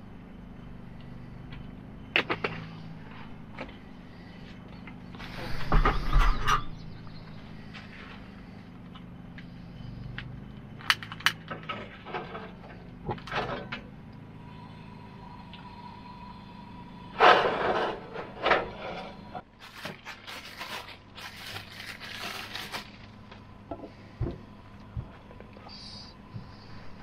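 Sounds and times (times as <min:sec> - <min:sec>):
scraping and rustling: 0:02.5 - 0:06.8, 0:17.2 - 0:23.3.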